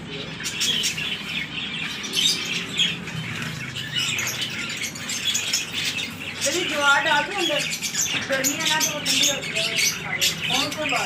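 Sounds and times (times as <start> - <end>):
finches chirping: 0.0 - 11.0.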